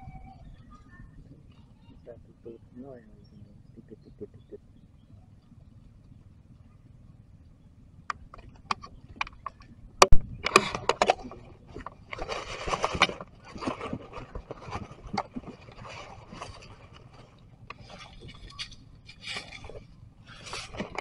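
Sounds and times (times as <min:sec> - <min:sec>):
dry leaves crackling and rustling: 0:12.0 - 0:18.7.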